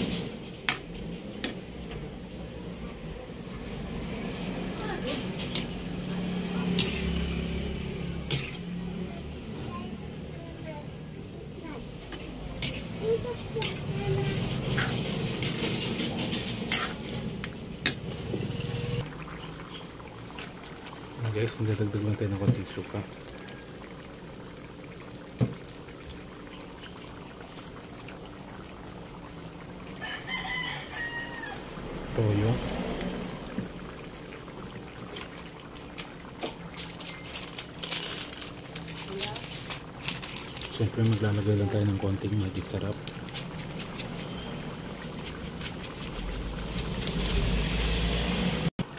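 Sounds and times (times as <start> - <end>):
stew bubbling at a boil: 0.0 - 18.1, 19.0 - 48.9
metal spatula scraping wok: 3.7 - 8.7, 12.0 - 19.0
thick stew sloshing: 11.8 - 18.4, 31.5 - 48.7.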